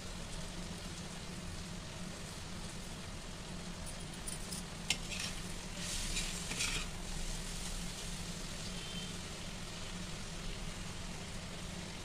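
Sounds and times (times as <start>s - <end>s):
onions sizzling in pan: 4.6s - 12.0s
ladle scraping pan: 4.9s - 7.0s.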